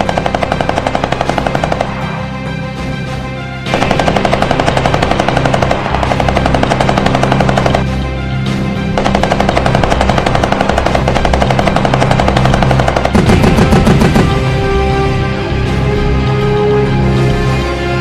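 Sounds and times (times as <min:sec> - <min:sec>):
rapid gunshots: 0:00.0 - 0:02.2, 0:03.6 - 0:08.0, 0:08.8 - 0:14.5
background music: 0:00.0 - 0:18.0.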